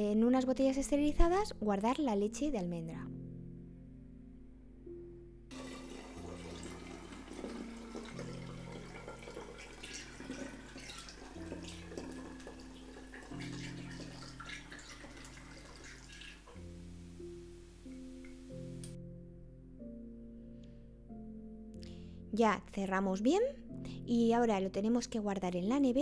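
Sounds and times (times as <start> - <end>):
liquid pouring through funnel: 5.5 - 16.6.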